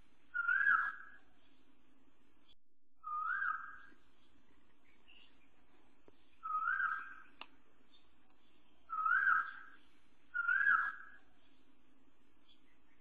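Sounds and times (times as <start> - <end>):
faint background birdsong: 0.0 - 13.0
bird whistled calls: 0.3 - 1.2, 3.0 - 3.9, 6.4 - 7.3, 8.9 - 11.2.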